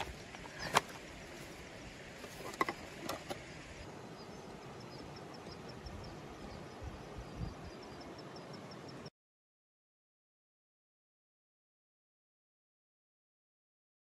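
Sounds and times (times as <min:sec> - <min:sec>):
tent gear clicks and knocks: 0:00.0 - 0:01.6, 0:02.2 - 0:03.4
river hissing: 0:00.0 - 0:08.2.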